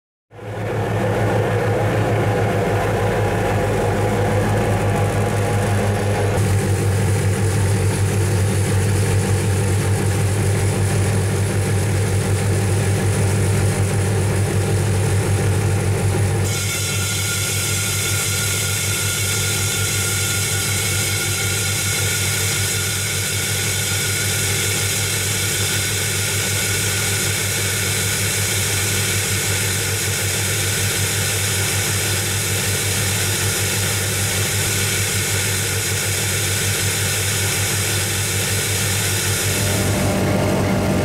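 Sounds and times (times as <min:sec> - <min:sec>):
excavator engine and vacuum drone: 0:00.3 - 0:41.0
core drill cutting asphalt: 0:16.1 - 0:41.0.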